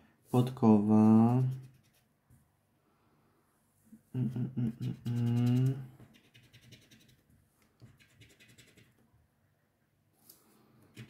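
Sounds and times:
scratch card being scratched: 1.4 - 2.1, 4.8 - 9.0.

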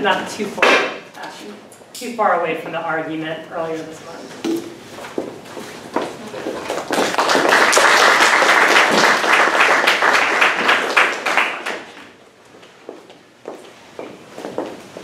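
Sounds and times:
audience applauding: 6.7 - 12.1.

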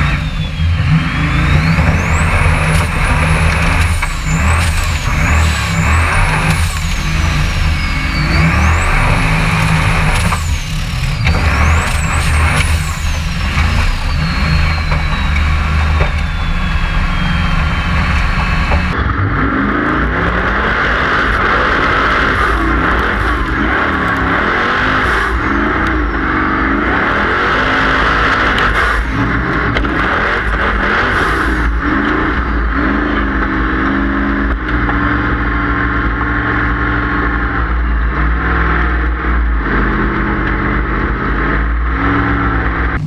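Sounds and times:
buggy engine revving hard: 0.0 - 43.0
high engine whine: 0.0 - 43.0.

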